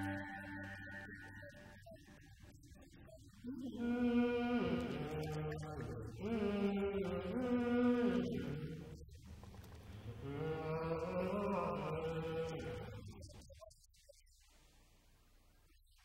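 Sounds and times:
old man chanting: 3.4s - 9.1s, 10.2s - 13.6s.

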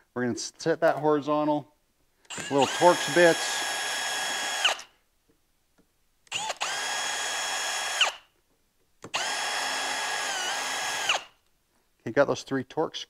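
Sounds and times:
cordless drill motor whine: 2.3s - 4.9s, 6.3s - 8.3s, 9.1s - 11.4s.

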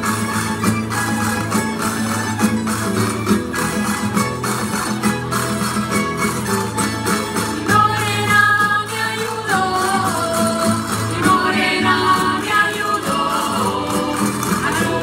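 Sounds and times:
percussion keeping the beat: 0.0s - 15.0s
plucked string ensemble: 0.0s - 15.0s
person singing: 7.7s - 15.0s.

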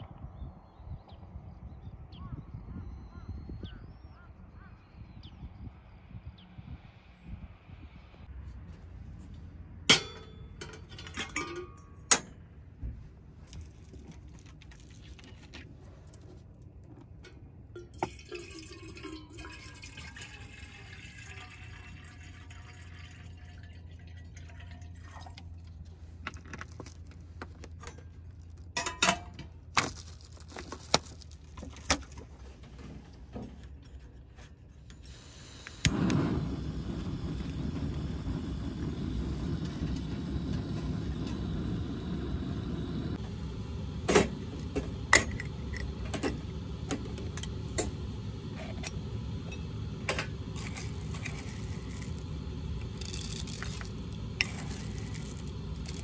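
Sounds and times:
water poured into kettle: 17.8s - 25.8s, 35.0s - 56.0s
gas stove burner rushing: 34.8s - 56.0s.

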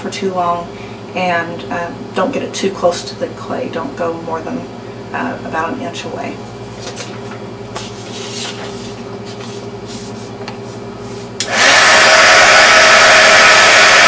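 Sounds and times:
heat gun fan rushing air: 6.4s - 14.0s.

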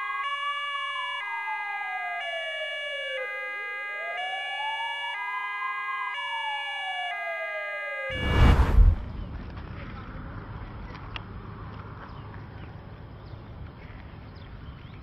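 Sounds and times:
ambulance siren wailing: 0.0s - 8.6s
two-tone hi-lo siren: 0.0s - 9.3s.

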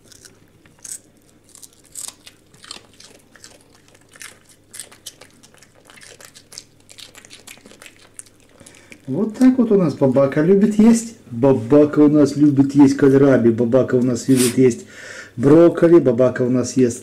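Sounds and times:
dog crunching and chewing: 0.0s - 10.7s.

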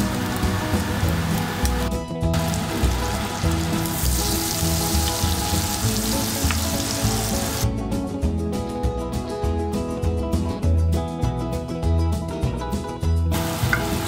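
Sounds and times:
butter sizzling in a pot: 0.0s - 7.6s, 13.4s - 14.0s
background music: 0.0s - 14.0s.

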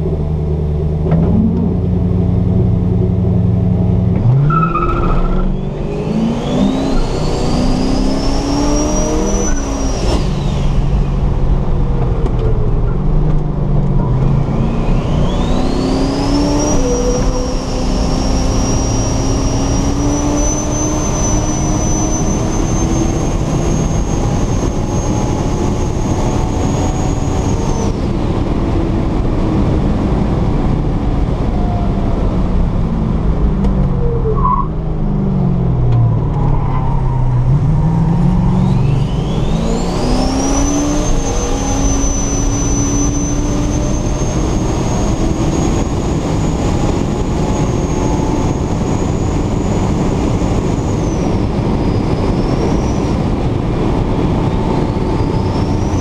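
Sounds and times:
high turbo whine: 0.0s - 56.0s
race car engine at full throttle: 0.0s - 56.0s
wind rushing through window: 5.9s - 56.0s.

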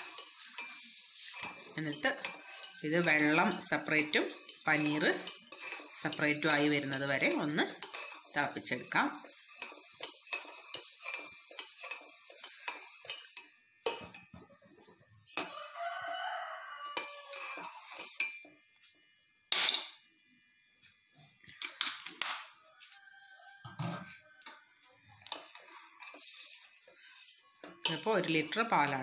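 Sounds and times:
metal spoon scraping a pot: 0.0s - 14.4s, 15.2s - 18.5s, 25.2s - 29.0s
rooster crowing: 15.4s - 17.6s, 22.5s - 24.6s.

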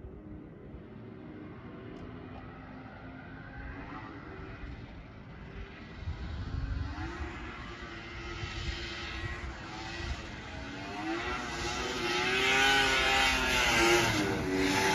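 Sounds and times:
snowmobile engine revving: 6.3s - 14.9s.

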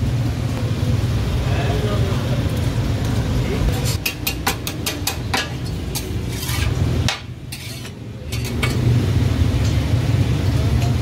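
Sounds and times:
cleaver chopping on steel griddle: 4.0s - 8.8s.

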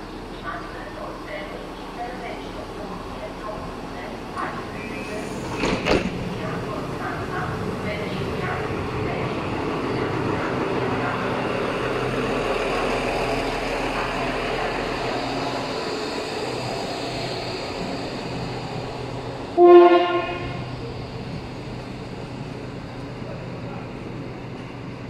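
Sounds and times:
diesel train rumbling: 0.0s - 25.0s
train horn blast: 19.6s - 20.7s.

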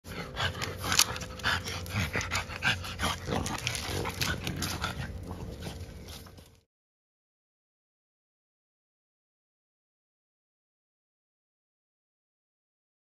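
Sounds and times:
puppies vocalizing: 0.1s - 6.5s
puppies clicking and scuffling: 0.1s - 6.6s.

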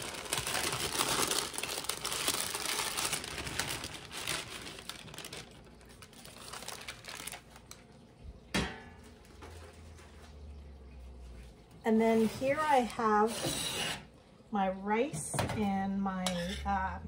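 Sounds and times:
parchment paper crinkling: 0.0s - 8.1s.

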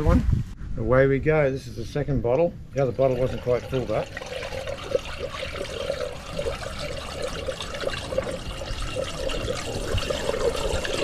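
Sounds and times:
water pouring with gurgle: 2.8s - 11.0s.

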